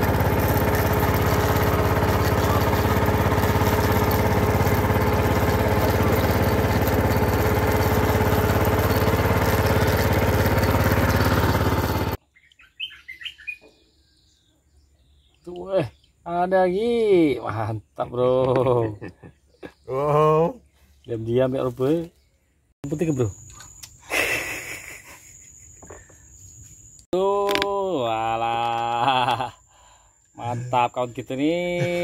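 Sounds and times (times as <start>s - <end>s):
small boat engine running: 0.0s - 12.2s, 28.2s - 30.9s, 31.6s - 32.0s
faint bird chirps: 12.2s - 16.4s.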